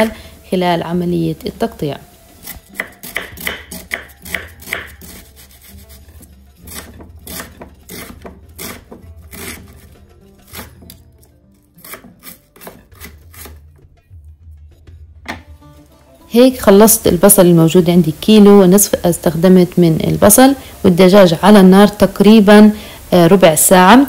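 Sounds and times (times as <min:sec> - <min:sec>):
knife slicing onion on board: 0:02.4 - 0:13.8.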